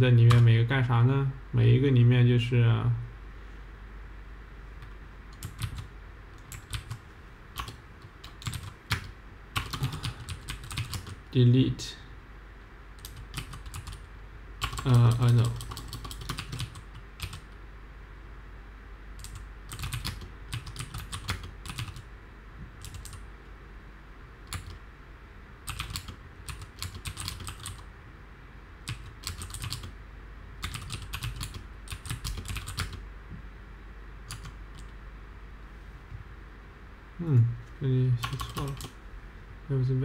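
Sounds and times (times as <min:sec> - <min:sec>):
typing on keyboard: 0:00.3 - 0:00.5, 0:05.4 - 0:07.0, 0:07.6 - 0:11.2, 0:13.0 - 0:17.5, 0:19.2 - 0:22.0, 0:22.8 - 0:23.2, 0:24.5 - 0:24.8, 0:25.7 - 0:27.8, 0:28.8 - 0:29.9, 0:30.6 - 0:33.0, 0:34.3 - 0:34.9, 0:38.2 - 0:39.0.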